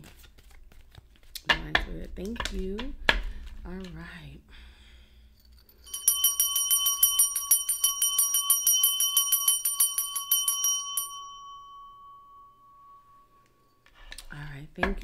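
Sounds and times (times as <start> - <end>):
small metal hand bell ringing: 5.5 - 13.9.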